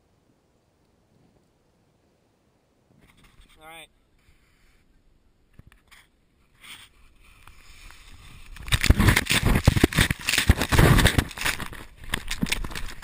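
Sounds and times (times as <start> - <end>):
snow hitting camera lens: 5.5 - 13.0
snow spraying and scraping: 6.4 - 13.0.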